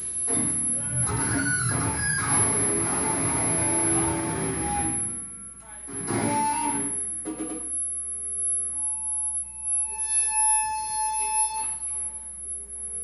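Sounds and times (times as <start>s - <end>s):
low amplifier hum: 0.0s - 9.4s
electric guitar feedback tone: 0.0s - 13.0s.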